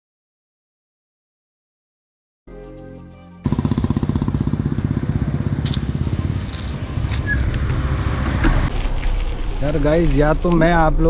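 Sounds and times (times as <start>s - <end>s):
bus engine throbbing: 3.5s - 11.0s.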